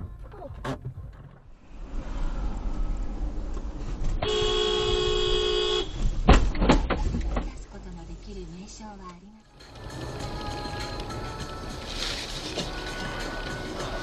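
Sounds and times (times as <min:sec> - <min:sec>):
road and engine noise: 0:00.0 - 0:14.0
car horn blast: 0:04.2 - 0:06.0
loud thump: 0:06.0 - 0:07.5.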